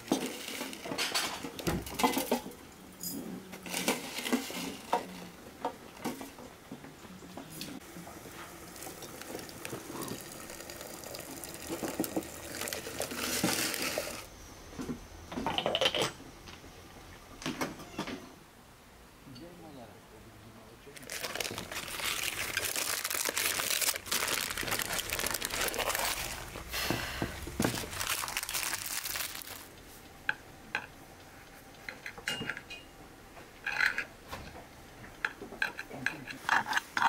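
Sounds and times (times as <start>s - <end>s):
hot water pouring into teapot: 8.1s - 14.3s.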